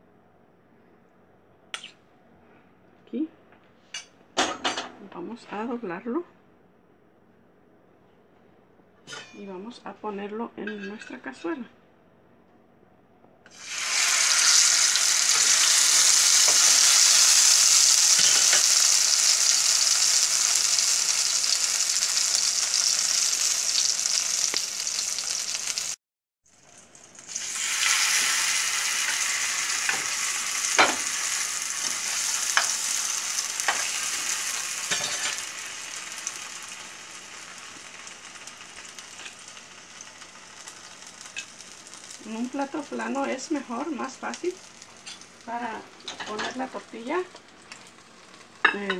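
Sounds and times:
food sizzling in hot oil: 13.5 - 48.9.

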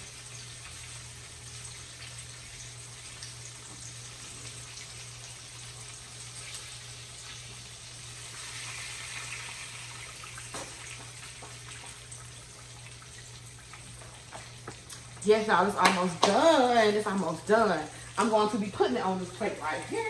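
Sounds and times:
fish sizzling in hot oil: 0.0 - 15.7.

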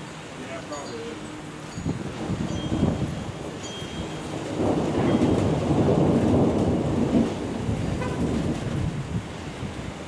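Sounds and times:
rain falling: 0.0 - 10.0
thunder rumbling: 2.0 - 10.0.

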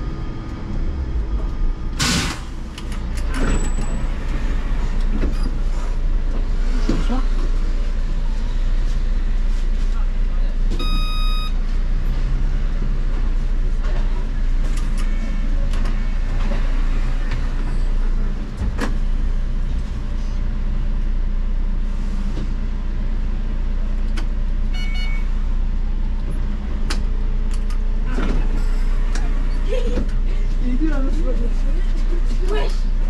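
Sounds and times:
trolleybus equipment hum: 0.0 - 33.0
short electronic beeping: 10.8 - 11.6.

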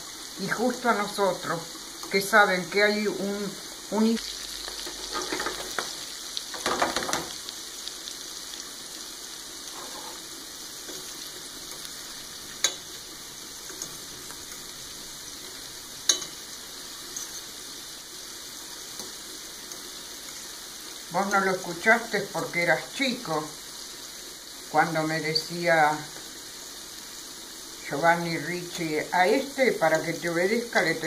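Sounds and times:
squid rings frying in hot oil: 0.0 - 31.0
fork clinking against pan: 16.1 - 16.4.

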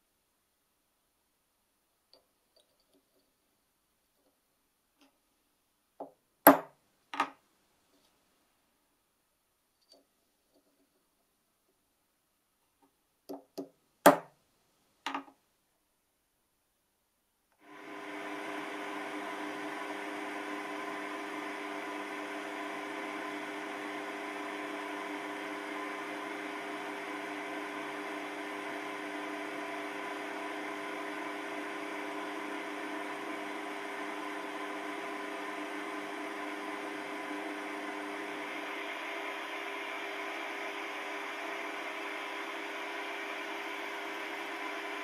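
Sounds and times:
lathe motor and gear whine: 17.6 - 45.0.

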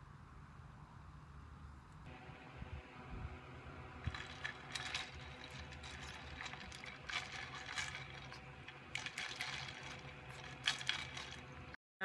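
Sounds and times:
dog crunching food in a bowl: 4.0 - 11.8.

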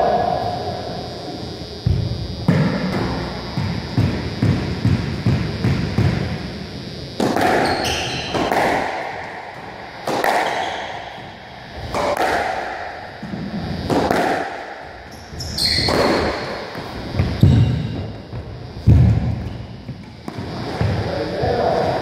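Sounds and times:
ball hitting walls: 7.2 - 11.0, 11.9 - 14.7
squash racket strikes: 7.2 - 11.2, 11.9 - 13.0, 13.8 - 14.8, 15.8 - 17.9
shoe squeak on wooden floor: 15.1 - 16.2.

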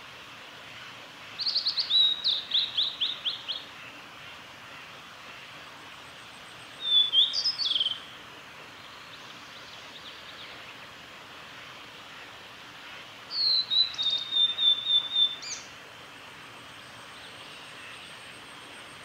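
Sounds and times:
bird singing whistled notes: 1.4 - 3.6, 6.8 - 8.0, 13.3 - 15.7.

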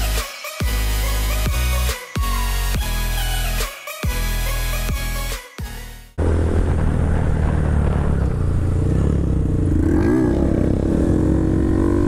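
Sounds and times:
motorcycle engine running: 6.2 - 12.0.

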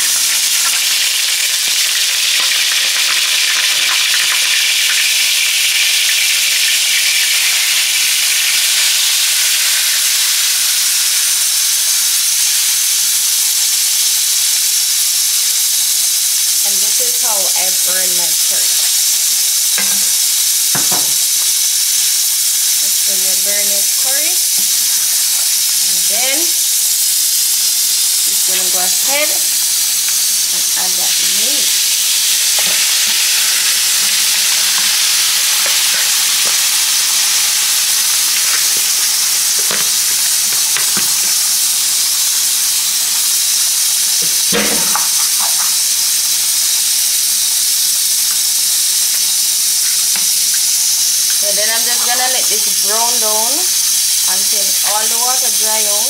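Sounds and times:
meat sizzling in a pot: 0.0 - 56.0
spoon knocking against pot: 20.7 - 21.2.

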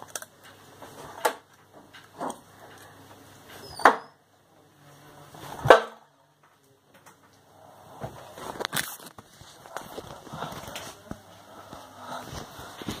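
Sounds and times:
darts hitting dartboard: 5.6 - 6.0.

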